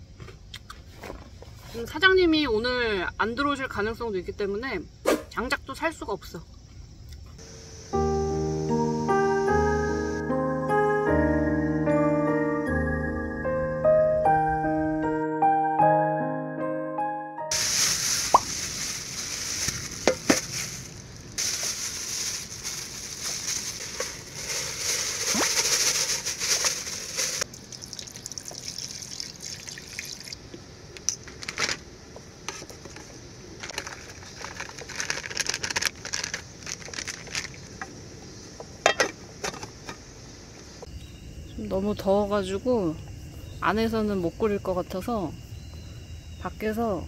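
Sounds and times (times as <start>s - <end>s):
water running and splashing: 17.5s - 30.4s.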